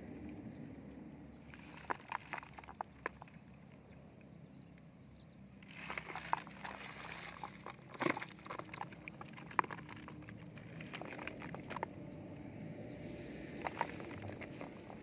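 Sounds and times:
rustling in wet grass: 1.4 - 3.6, 5.6 - 15.0
fish trap net clicking: 5.6 - 12.0.

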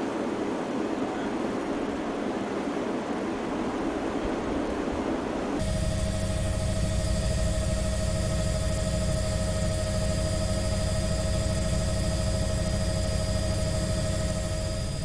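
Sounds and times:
helicopter engine and rotor drone: 5.6 - 15.0.

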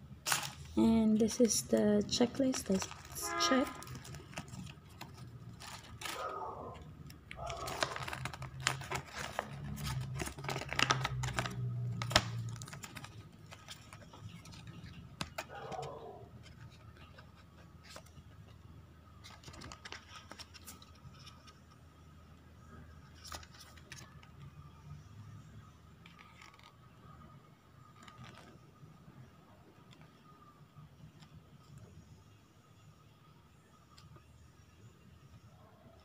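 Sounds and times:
paper rustling and crinkling: 0.2 - 21.8, 23.0 - 24.5, 26.0 - 26.9, 27.8 - 28.8.

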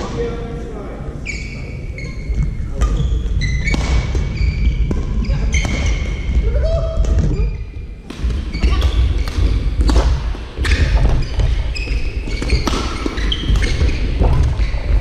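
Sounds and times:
shoe squeaks: 1.2 - 6.3, 8.5 - 9.8, 10.6 - 15.0
rackets hitting shuttlecock: 8.1 - 11.2, 12.3 - 15.0.

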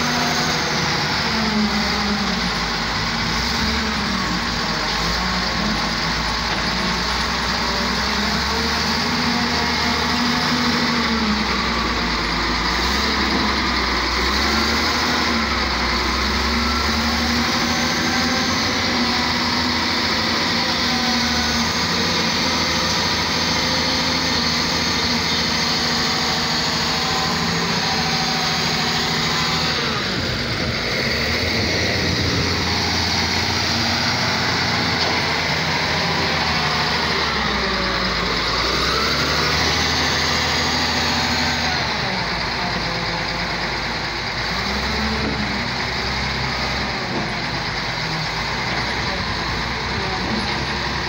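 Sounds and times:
dump truck engine running: 0.0 - 51.0
wheel loader diesel engine: 0.0 - 51.0.

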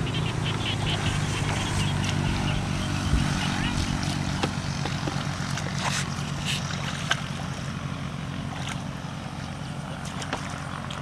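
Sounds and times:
motor droning: 0.0 - 11.0
hands splashing in muddy water: 4.0 - 11.0.

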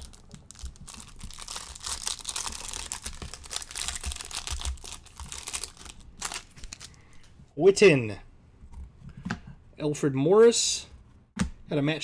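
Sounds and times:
wrapper tearing and crinkling: 0.0 - 7.0.

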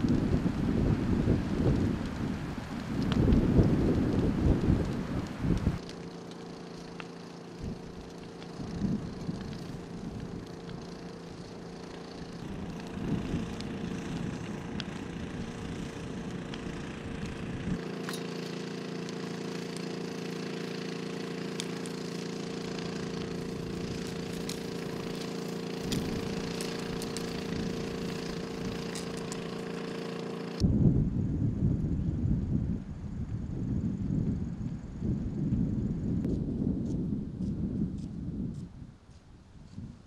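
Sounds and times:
wind rumble on microphone: 0.0 - 6.0, 7.5 - 17.8, 21.9 - 29.6, 30.6 - 40.0
small engine running: 0.0 - 30.6
hiss and crackles: 0.0 - 30.7, 31.8 - 40.0.

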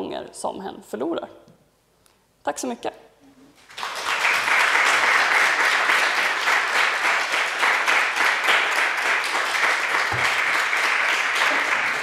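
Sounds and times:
audience applauding: 3.6 - 12.0.

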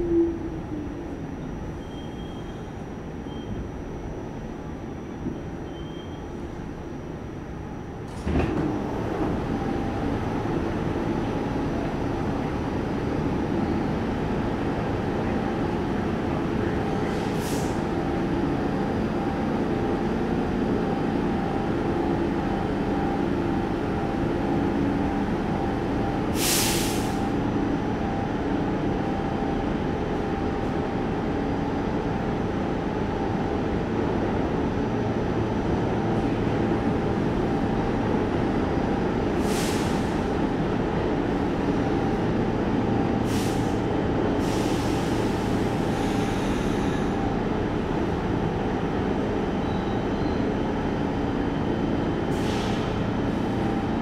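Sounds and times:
subway train rumble: 0.0 - 54.0
air hissing: 26.4 - 27.2.

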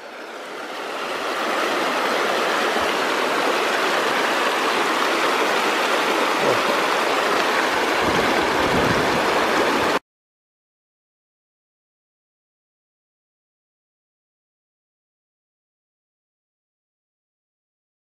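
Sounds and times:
creek rushing over rocks: 0.0 - 10.0.

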